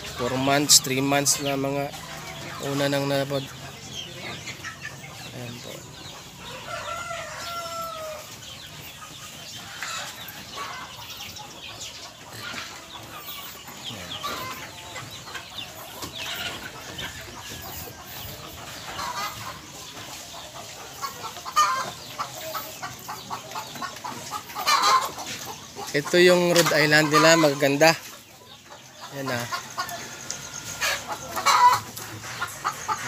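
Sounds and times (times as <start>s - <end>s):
chickens clucking and calling: 0.0s - 33.0s.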